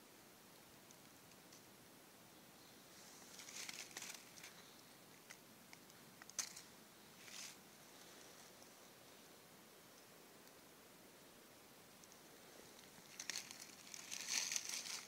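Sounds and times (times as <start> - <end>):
dry leaves rustling: 2.9 - 4.8, 6.3 - 8.6, 12.4 - 15.0.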